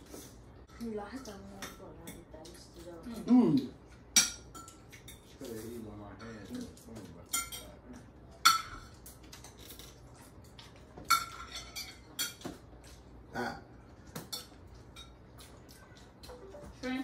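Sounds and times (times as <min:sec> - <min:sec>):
cutlery clinking on plates: 0:04.1 - 0:09.9, 0:10.7 - 0:13.0, 0:14.1 - 0:15.5.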